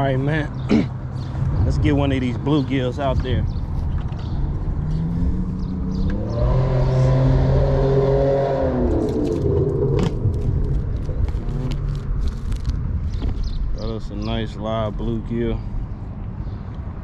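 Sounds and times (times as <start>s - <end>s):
vehicle engine passing: 0.0s - 12.7s
low traffic rumble: 0.0s - 17.0s.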